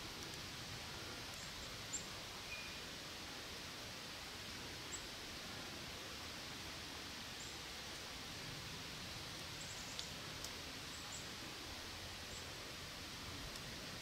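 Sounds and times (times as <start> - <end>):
faint steady hiss: 0.0 - 14.0
small ticks: 9.3 - 11.3.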